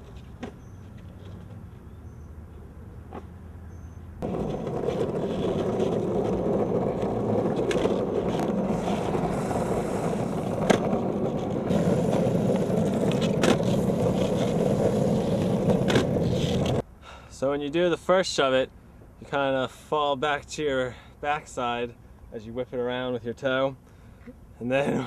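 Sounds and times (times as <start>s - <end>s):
longboard wheels rolling on asphalt: 4.2s - 16.8s
skateboard clacking: 4.2s - 16.8s.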